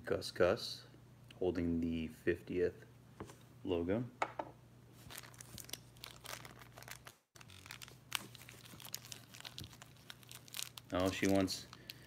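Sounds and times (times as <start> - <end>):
packaging crinkling and tearing: 5.0 - 12.0.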